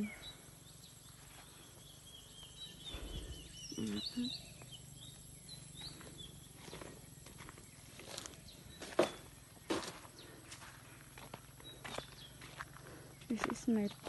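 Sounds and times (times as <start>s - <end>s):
birds calling: 0.0s - 14.0s
outdoor background noise: 0.0s - 14.0s
repeated high chirps: 2.9s - 4.3s.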